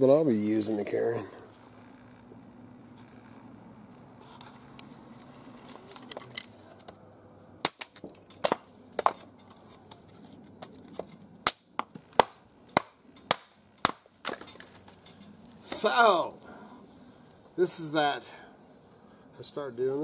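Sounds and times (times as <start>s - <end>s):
hatchet chopping kindling: 7.6s - 10.0s, 10.6s - 16.1s.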